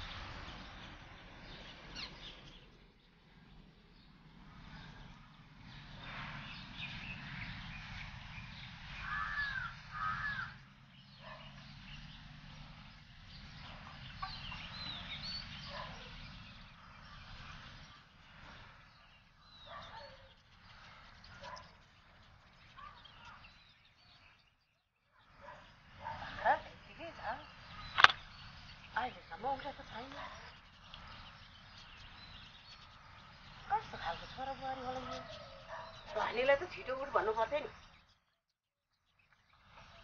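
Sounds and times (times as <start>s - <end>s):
small birds chirping: 0.0s - 40.0s
rising and falling calls: 4.8s - 24.6s.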